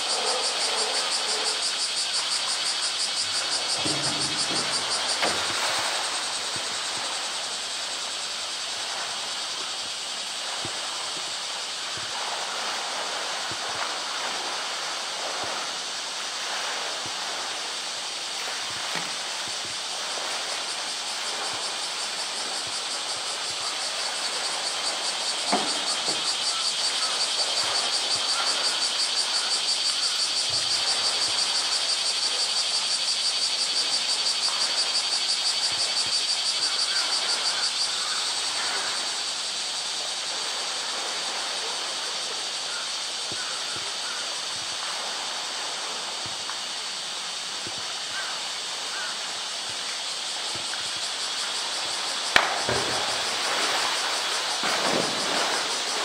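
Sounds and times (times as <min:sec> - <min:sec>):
cicadas droning: 0:00.0 - 0:56.0
water splashing and sloshing: 0:00.0 - 0:56.0
small knocks: 0:03.8 - 0:06.0.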